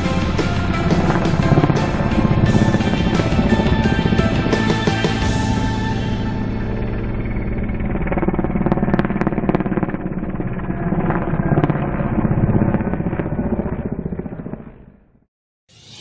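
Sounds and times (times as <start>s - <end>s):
helicopter rotor beat: 0.0s - 15.0s.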